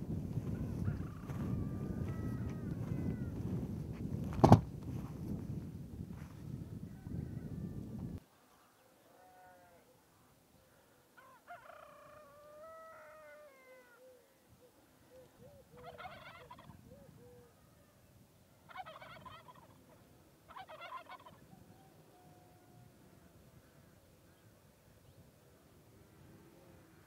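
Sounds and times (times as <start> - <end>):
farm animal long wavering call: 11.2 - 14.2
farm animal chattering calls: 20.5 - 21.4.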